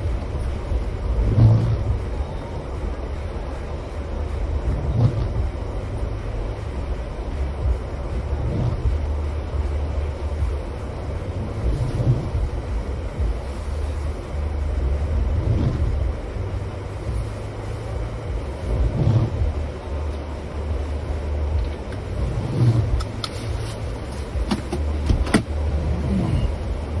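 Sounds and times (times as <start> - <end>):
engine and tyres rumbling: 0.0 - 27.0
sharp clicks and knocks: 24.1 - 25.6.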